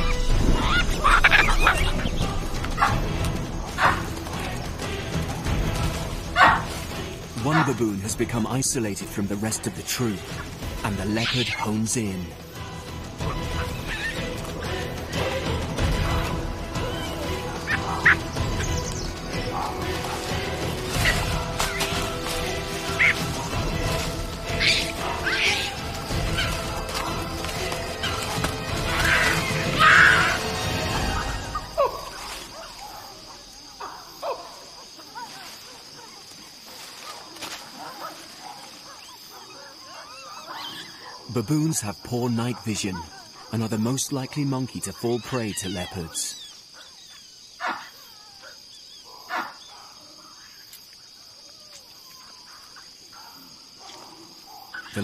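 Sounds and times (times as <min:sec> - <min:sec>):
baboon cries: 0:00.0 - 0:02.0, 0:45.0 - 0:46.6
background music: 0:00.0 - 0:34.5, 0:40.8 - 0:46.3
night insects droning: 0:00.0 - 0:55.0
baboon alarm bark: 0:03.8 - 0:04.1, 0:06.4 - 0:06.7, 0:16.9 - 0:18.3, 0:22.9 - 0:23.5, 0:37.0 - 0:41.3, 0:42.5 - 0:43.6, 0:44.4 - 0:50.6, 0:52.2 - 0:55.0.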